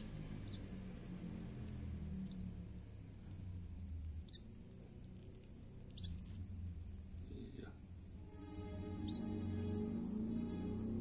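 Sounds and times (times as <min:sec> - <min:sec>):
high-pitched insect drone: 0:00.0 - 0:04.8, 0:05.6 - 0:11.0
low hum: 0:08.1 - 0:11.0.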